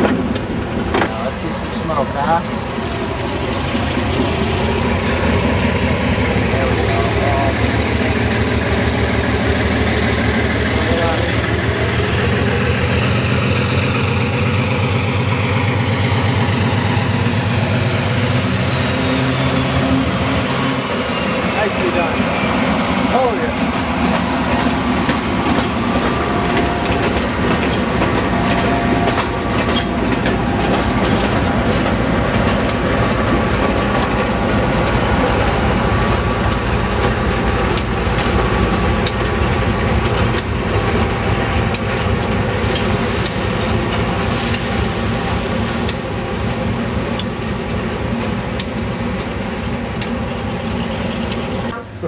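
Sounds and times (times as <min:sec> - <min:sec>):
diesel locomotive rumble: 0:00.0 - 0:52.0
wheels clicking over rail joints: 0:22.8 - 0:40.9, 0:46.9 - 0:51.7.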